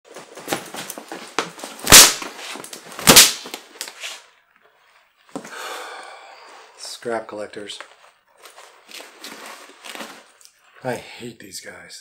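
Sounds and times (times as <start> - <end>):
bullwhip cracking: 1.8 - 3.7.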